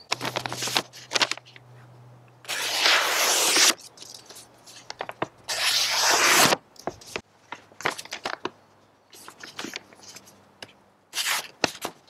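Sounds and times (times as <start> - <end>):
knife slicing paper: 2.5 - 3.8, 5.5 - 6.6, 11.1 - 11.9.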